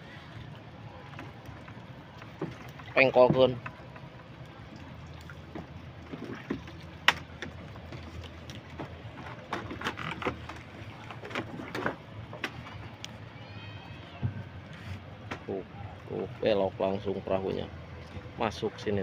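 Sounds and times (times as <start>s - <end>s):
low steady hum: 0.0s - 19.0s
water sloshing around boat hull: 0.0s - 19.0s
knocks on boat frame: 3.2s - 3.7s.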